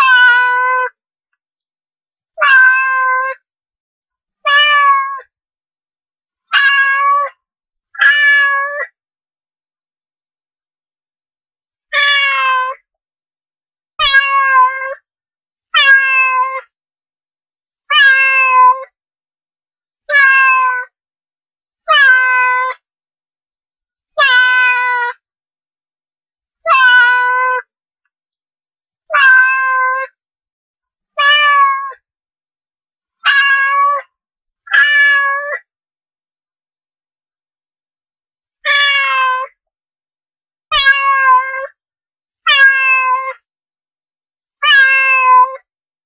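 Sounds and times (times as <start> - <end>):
cat meowing: 0.0 - 1.0, 2.4 - 3.4, 4.5 - 5.2, 6.5 - 7.4, 8.0 - 8.9, 11.9 - 12.8, 14.0 - 15.0, 15.8 - 16.7, 17.9 - 18.9, 20.1 - 20.9, 21.9 - 22.8, 24.2 - 25.2, 26.6 - 27.7, 29.1 - 30.2, 31.2 - 32.0, 33.2 - 34.1, 34.7 - 35.7, 38.6 - 39.6, 40.7 - 41.7, 42.5 - 43.4, 44.6 - 45.6.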